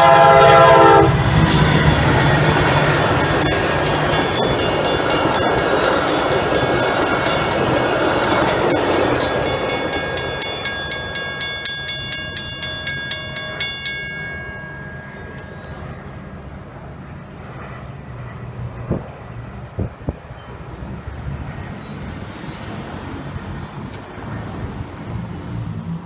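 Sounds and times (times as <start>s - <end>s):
railroad crossing bell ringing: 0.0s - 20.7s.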